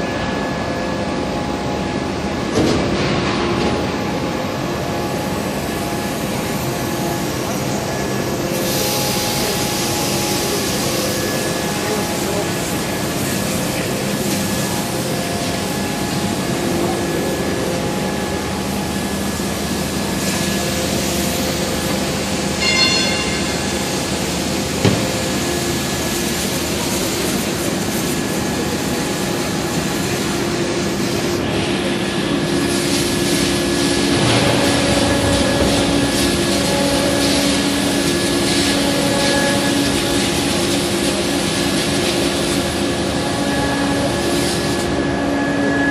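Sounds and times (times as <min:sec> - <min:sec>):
heavy machinery rumble and hum: 0:00.0 - 0:45.9
high squeal: 0:22.4 - 0:24.4.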